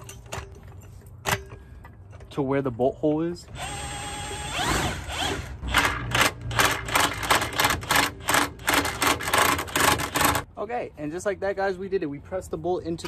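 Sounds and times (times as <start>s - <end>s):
cordless drill whine: 3.5s - 5.5s.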